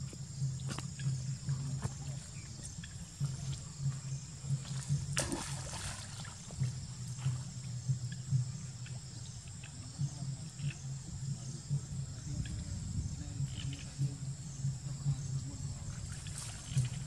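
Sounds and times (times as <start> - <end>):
steady low hum: 0.0 - 17.0
monkeys splashing in muddy puddle: 0.7 - 7.6, 15.9 - 17.0.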